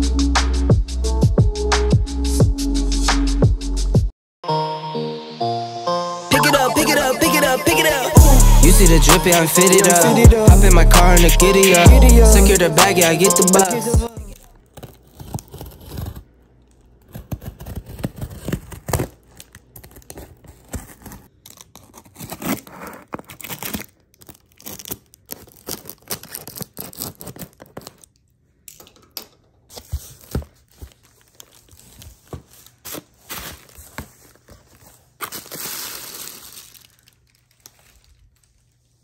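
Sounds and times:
packaging tearing and rustling: 14.3s - 28.4s, 29.7s - 39.0s.

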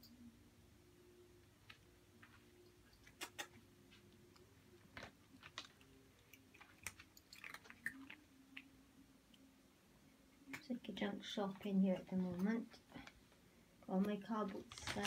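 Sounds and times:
cat crunching dry kibble: 4.3s - 8.7s, 14.6s - 15.0s.

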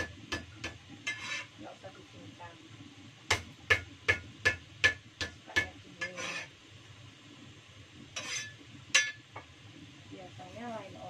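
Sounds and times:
metal spatula clinking on pan: 0.0s - 1.5s, 3.3s - 6.5s, 8.2s - 9.2s.

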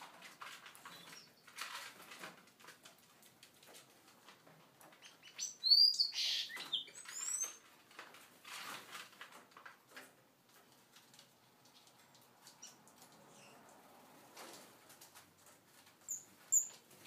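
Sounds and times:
finches chirping: 5.2s - 7.6s.

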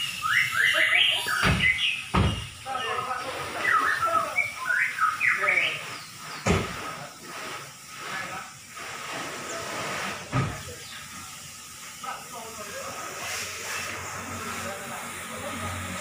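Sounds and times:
bird singing whistled phrases: 0.0s - 2.1s, 3.5s - 6.4s
steady hiss: 0.0s - 16.0s
sharp knocks: 1.4s - 2.5s.

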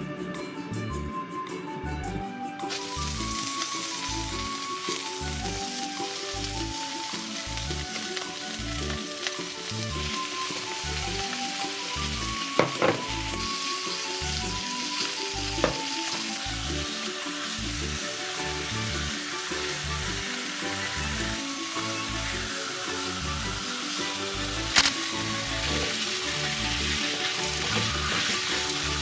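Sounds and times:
meat sizzling in hot oil: 2.7s - 29.0s
sharp clicks: 24.7s - 25.0s.

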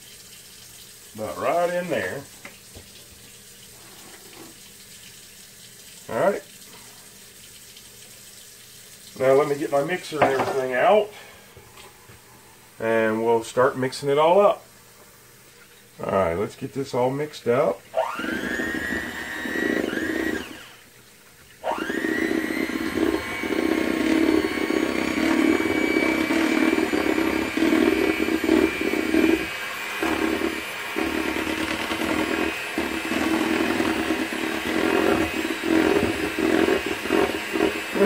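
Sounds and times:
electric hand mixer whirring: 17.9s - 21.0s, 21.6s - 38.0s.

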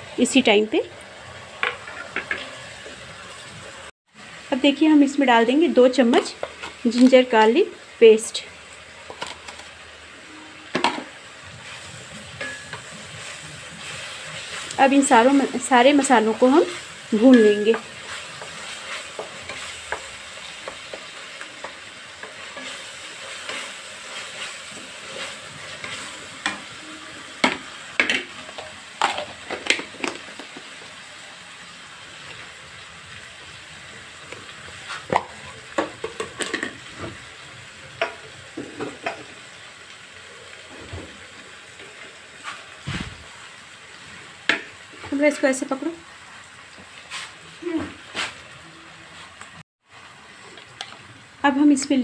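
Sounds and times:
spice paste sizzling in a pan: 0.0s - 52.0s
wooden spatula scraping a pan: 11.4s - 26.8s, 34.7s - 37.2s, 41.8s - 43.2s, 46.9s - 48.5s.

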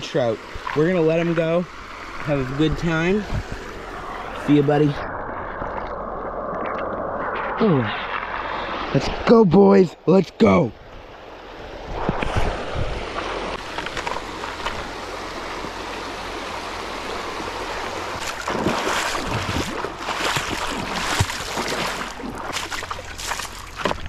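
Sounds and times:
water splashing: 0.0s - 9.2s, 11.9s - 24.0s
river rushing over stones: 12.5s - 24.0s.

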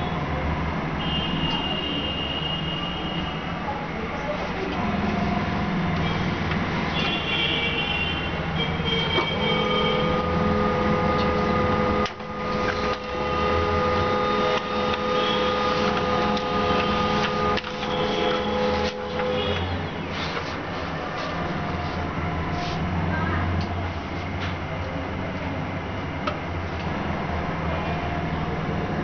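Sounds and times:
small electric machine whining: 9.4s - 19.6s.

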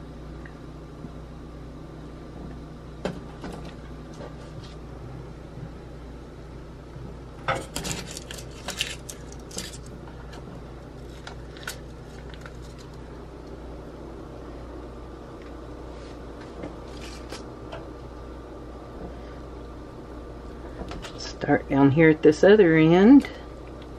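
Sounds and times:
steady low hum: 0.0s - 23.9s
parchment paper rustling: 7.8s - 9.9s, 16.8s - 17.5s.

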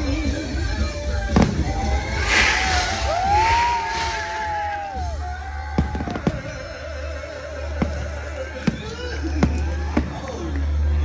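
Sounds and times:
music over loudspeakers: 0.0s - 3.9s
firework bang: 1.3s - 6.6s.

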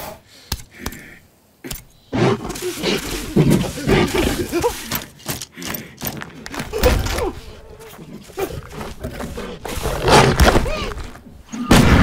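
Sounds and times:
small growls: 6.6s - 11.7s.

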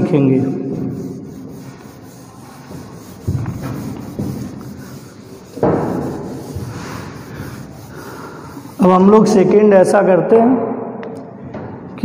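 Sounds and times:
duster scrubbing whiteboard: 0.0s - 9.6s.

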